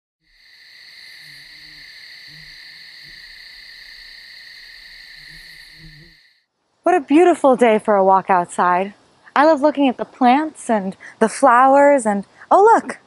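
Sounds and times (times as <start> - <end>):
high-pitched insect chorus: 0.2 - 6.4
low animal calls: 0.6 - 6.2.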